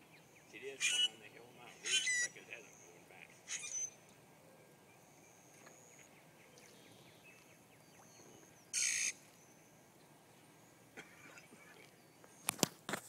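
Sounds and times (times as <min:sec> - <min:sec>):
faint outdoor background: 0:00.0 - 0:13.0
high whistled bird calls: 0:00.1 - 0:01.2, 0:01.8 - 0:04.0.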